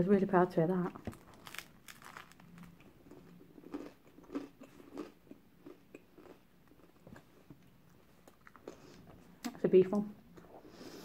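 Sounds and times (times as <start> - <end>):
person chewing bread: 0.9 - 9.3.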